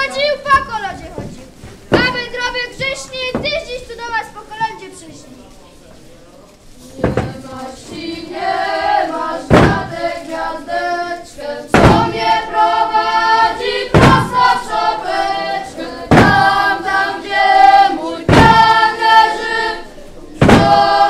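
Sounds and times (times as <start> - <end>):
children singing in unison: 6.9 - 21.0
thump on wooden stage floor: 7.0 - 8.0, 9.5 - 10.0, 11.7 - 12.2, 13.9 - 14.5, 16.1 - 16.5, 18.3 - 18.8, 20.4 - 20.8.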